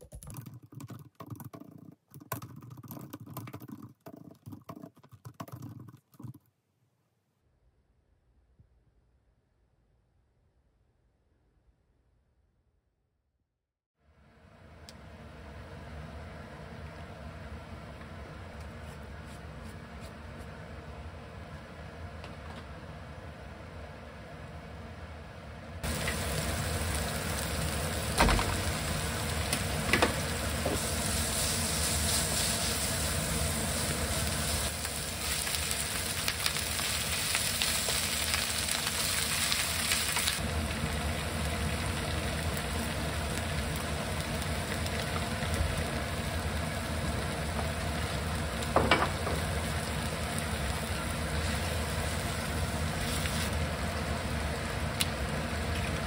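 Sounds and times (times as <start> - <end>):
meat and spinach sizzling in pan: 25.8 - 55.7.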